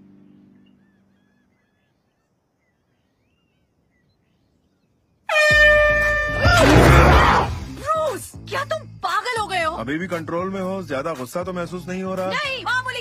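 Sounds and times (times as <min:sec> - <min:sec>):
air horn honk: 0:05.3 - 0:07.6.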